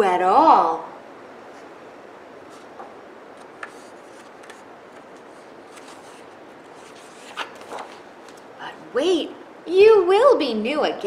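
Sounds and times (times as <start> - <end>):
room hiss: 0.0 - 11.0
book page turning: 3.4 - 8.5.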